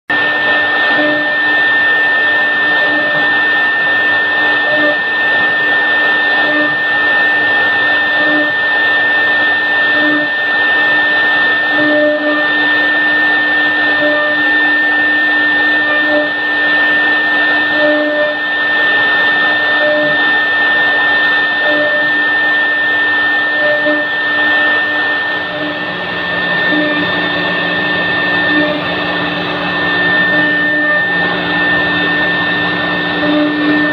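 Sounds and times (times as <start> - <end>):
router bit cutting wood: 0.1 - 33.9
router spindle high whine: 0.1 - 33.9
low hum: 12.5 - 33.9.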